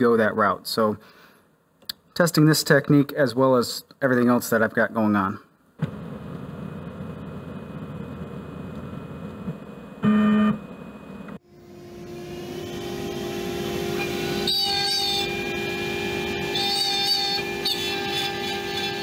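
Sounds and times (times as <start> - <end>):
bit cutting wood: 12.3 - 19.0.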